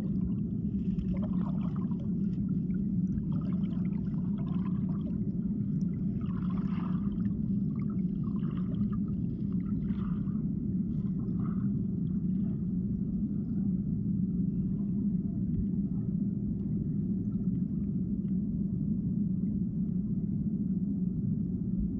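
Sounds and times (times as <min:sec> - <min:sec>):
soft gurgles: 0:00.0 - 0:12.8
underwater river rumble: 0:00.0 - 0:21.9.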